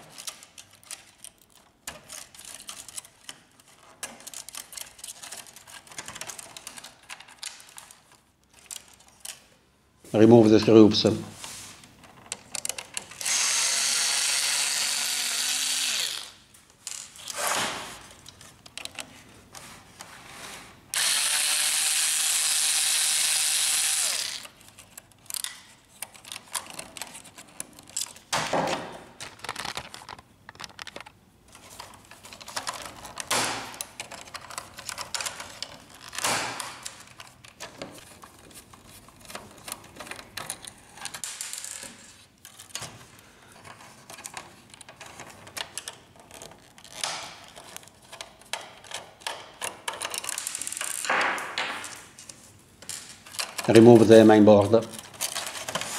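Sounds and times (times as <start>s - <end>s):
electric screwdriver running: 13.2s - 16.4s, 21.0s - 24.5s
handling clicks and knocks: 24.6s - 41.3s, 43.6s - 54.2s.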